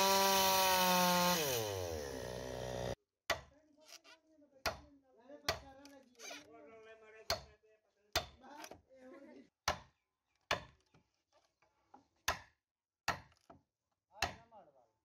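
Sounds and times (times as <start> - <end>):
hand tool striking wood: 14.2 - 14.4.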